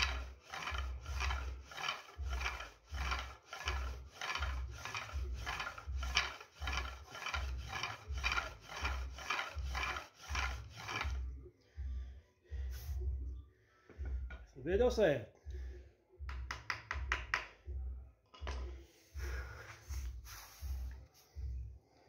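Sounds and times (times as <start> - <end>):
pump drill rasping on wood: 0.0 - 11.3.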